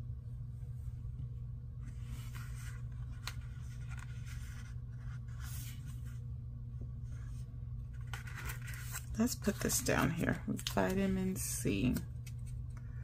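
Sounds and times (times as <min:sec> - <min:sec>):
steady low hum: 0:00.0 - 0:13.0
paper rustling: 0:01.8 - 0:06.2, 0:07.1 - 0:12.6.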